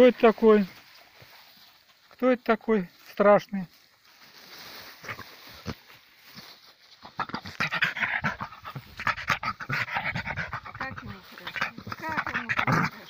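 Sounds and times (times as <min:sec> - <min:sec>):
dog snuffling in grass: 0:04.0 - 0:13.0
dog panting rapidly: 0:07.2 - 0:13.0.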